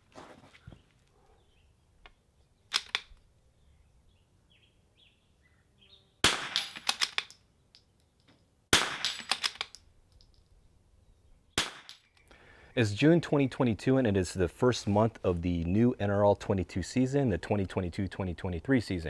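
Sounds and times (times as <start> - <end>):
rifle bolt clicks: 2.7 - 3.2, 6.5 - 7.9, 9.0 - 10.3
rifle shots: 6.2 - 7.3, 8.7 - 9.7, 11.6 - 12.0.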